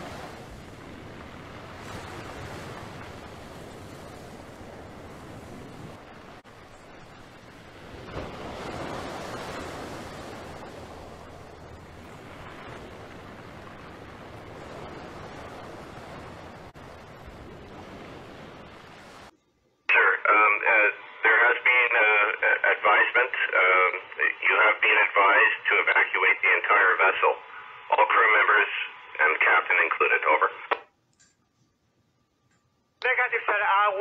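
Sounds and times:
sea surf: 0.0 - 19.3
wind: 0.0 - 31.3.

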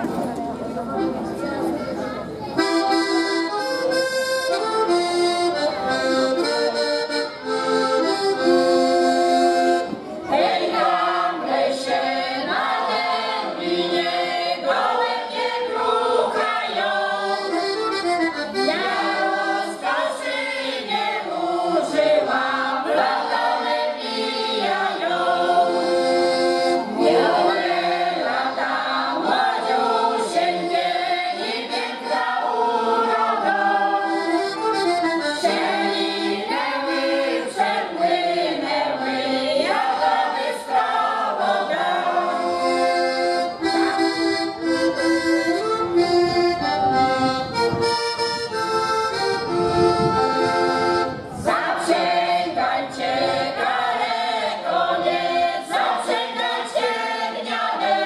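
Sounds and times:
accordion chords: 0.0 - 58.0
choir singing: 10.2 - 17.9, 18.6 - 43.3, 51.4 - 58.0.

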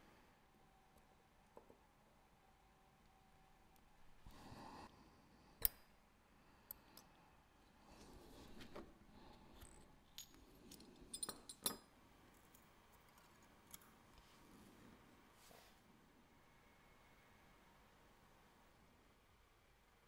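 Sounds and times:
metal tool clicks and clinks: 9.6 - 11.9.

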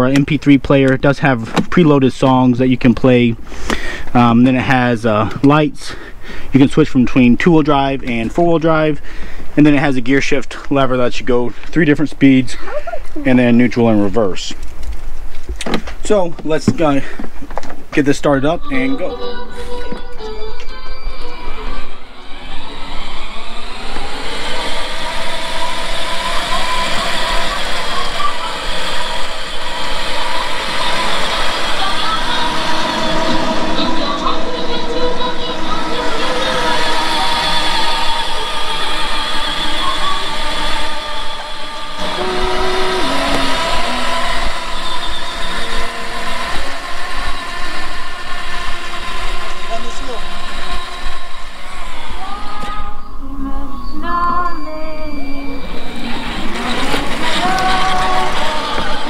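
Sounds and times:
electric toy vehicle motor and tyres: 18.0 - 59.0.

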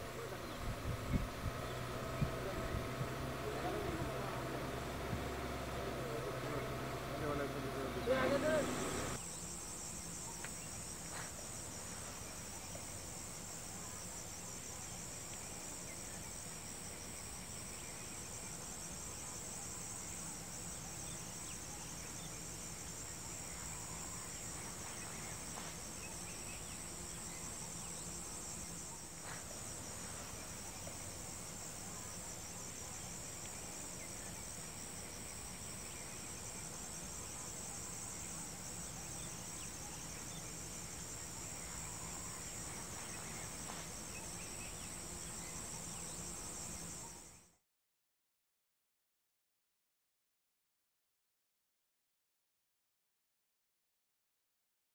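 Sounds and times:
insects chirring: 0.0 - 47.5
faint ticks: 33.4 - 33.6.

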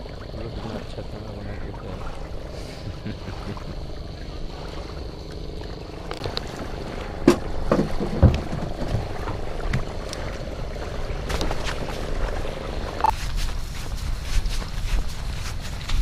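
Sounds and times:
motor boat engine rumbling: 0.0 - 16.0
sharp knocks and thumps: 6.1 - 9.9.

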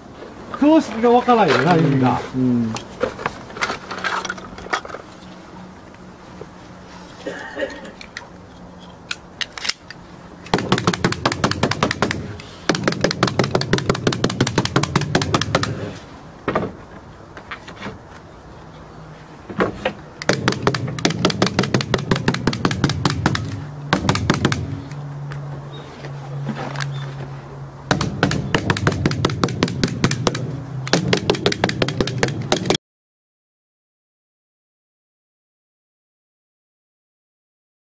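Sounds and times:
rapid tool strikes on shingles: 10.5 - 16.0, 20.2 - 24.9, 27.9 - 32.8.

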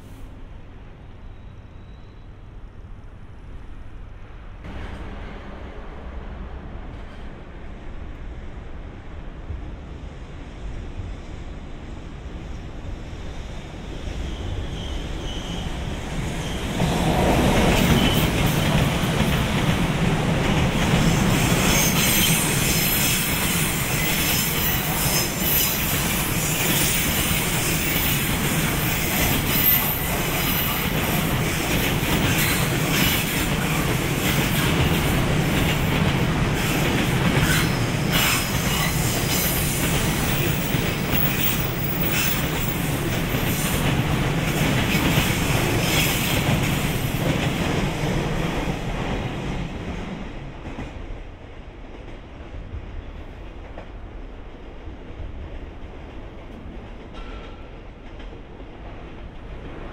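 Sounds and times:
train wheels clattering on rails: 14.1 - 54.2, 54.8 - 59.9.

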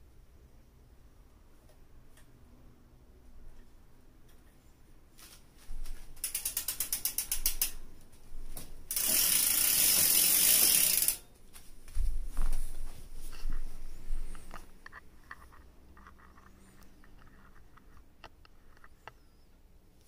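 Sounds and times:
bicycle freehub ratcheting clicks: 6.2 - 7.9, 8.9 - 11.2.

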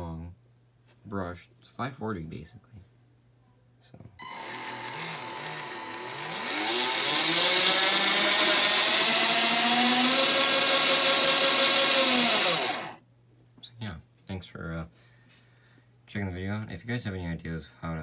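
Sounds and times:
electric drill motor whining: 4.2 - 13.0.

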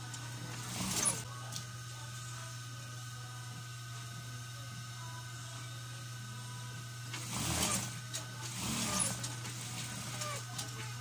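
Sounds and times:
sewing machine stitching: 0.5 - 1.2, 7.1 - 10.9.

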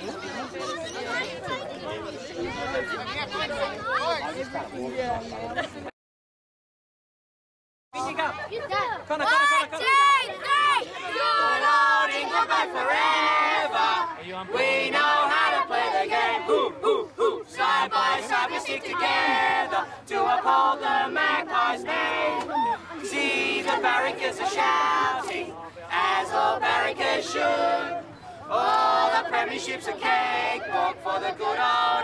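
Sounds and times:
boys singing together: 10.8 - 32.0.

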